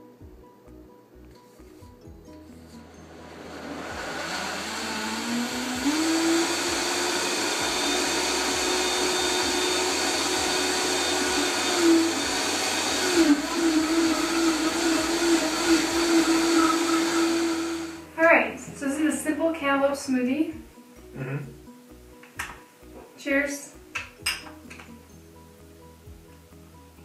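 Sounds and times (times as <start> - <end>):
blender motor running: 2.8 - 18.1.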